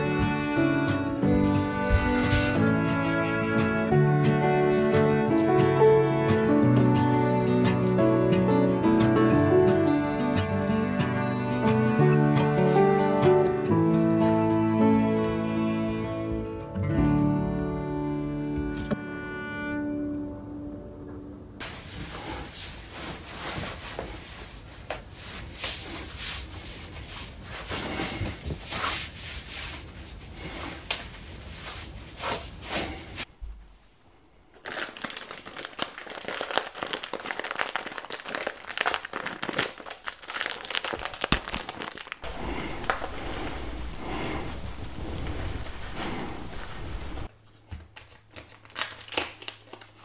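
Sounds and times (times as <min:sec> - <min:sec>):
crinkling and rustling: 0:21.6 - 0:33.3, 0:34.5 - 0:43.9, 0:44.6 - 0:50.0.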